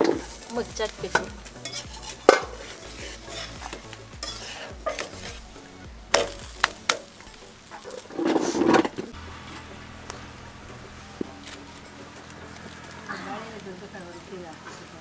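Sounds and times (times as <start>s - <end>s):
spatula scraping pan: 0.0s - 9.2s
flatbread sizzling on iron pan: 0.0s - 15.0s.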